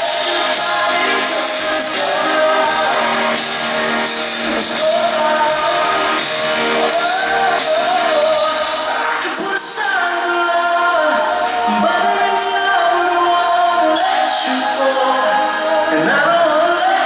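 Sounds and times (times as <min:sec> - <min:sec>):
live pop band: 0:00.0 - 0:17.0
man singing: 0:00.0 - 0:17.0.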